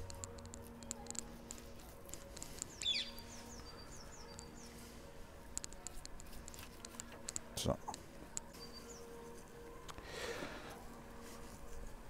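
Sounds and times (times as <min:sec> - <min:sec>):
songbird calling: 0:02.7 - 0:04.8.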